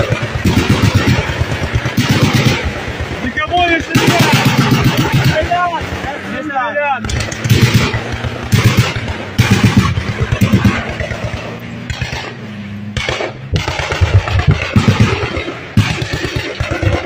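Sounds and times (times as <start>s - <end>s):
automatic gunfire bursts: 0.0s - 6.0s, 7.0s - 12.4s, 13.0s - 17.0s
armoured vehicle engines droning: 0.0s - 17.0s.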